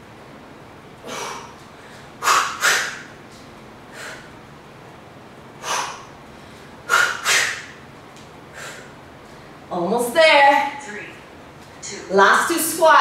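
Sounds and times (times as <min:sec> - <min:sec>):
person exhaling sharply: 0:01.0 - 0:03.0, 0:06.9 - 0:07.7.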